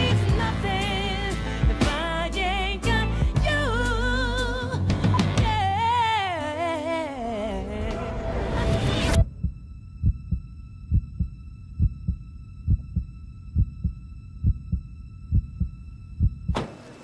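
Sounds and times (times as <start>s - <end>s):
heartbeat thumps: 9.2s - 16.6s.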